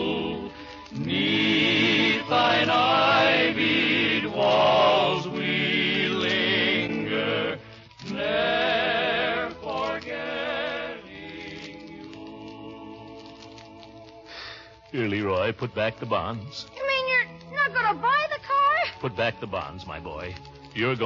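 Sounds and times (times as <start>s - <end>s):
slow music with singing: 0.0s - 15.5s, 16.2s - 18.1s, 18.8s - 21.0s.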